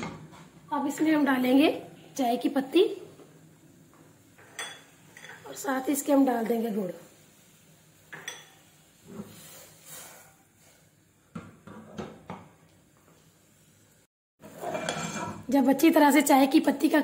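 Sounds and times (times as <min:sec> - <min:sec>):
utensil clinking on saucepan: 0:08.1 - 0:08.6.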